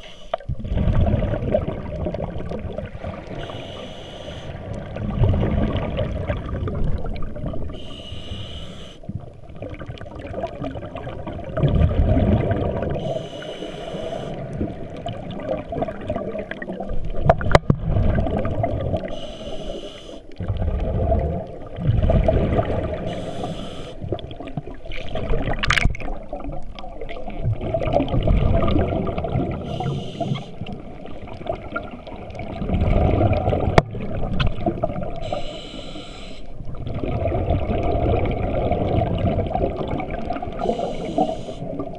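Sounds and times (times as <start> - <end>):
regulator hiss on inhale: 0.0 - 0.4, 3.3 - 4.6, 7.8 - 9.1, 13.0 - 14.5, 19.1 - 20.4, 23.0 - 24.1, 29.6 - 30.7, 35.2 - 36.6, 40.6 - 41.9
exhaled bubbles rushing: 0.4 - 3.9, 4.5 - 7.9, 9.1 - 13.2, 14.4 - 19.2, 20.3 - 35.4, 36.6 - 41.9.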